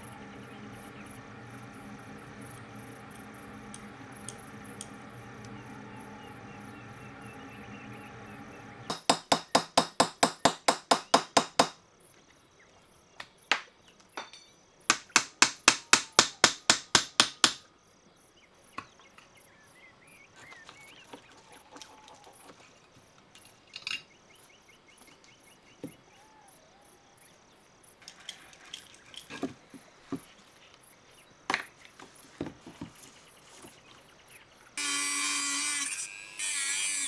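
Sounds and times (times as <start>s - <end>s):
steady low hum: 0.0s - 11.6s
hammer striking steel: 8.9s - 11.8s.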